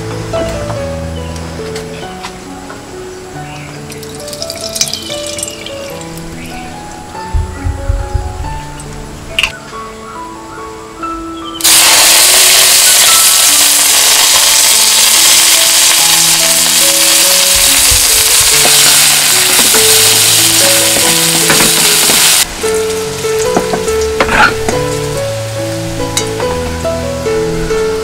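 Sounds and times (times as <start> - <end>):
onions sizzling in a hot wok: 11.6 - 23.5.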